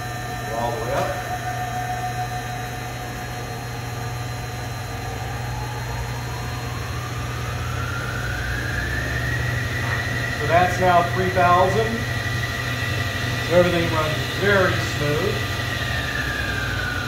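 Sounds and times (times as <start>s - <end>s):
lathe spindle whine: 0.0s - 17.0s
rotary converter hum: 0.0s - 17.0s.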